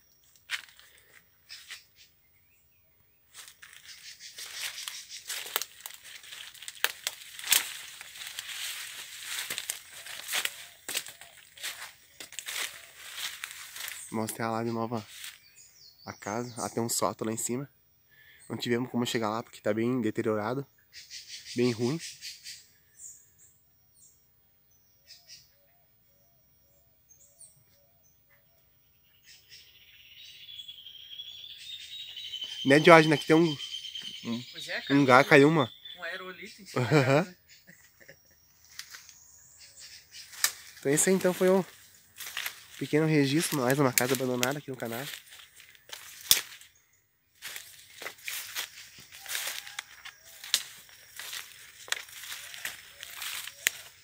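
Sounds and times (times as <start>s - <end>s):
faint birds chirping: 0.0s - 54.0s
leaves and twigs rustling: 0.2s - 2.1s, 3.3s - 15.7s, 38.0s - 54.0s
twigs snapping: 3.3s - 14.4s, 38.7s - 39.2s, 40.3s - 46.7s, 47.4s - 54.0s.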